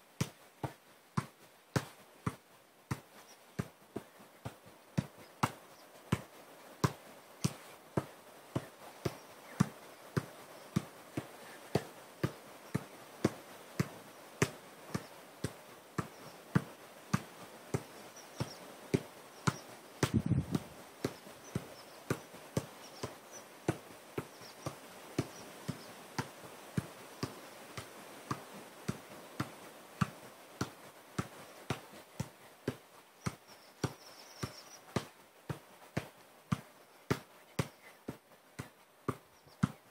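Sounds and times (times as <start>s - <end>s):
football kicks: 0.2s - 39.9s
low thuds: 20.0s - 20.8s.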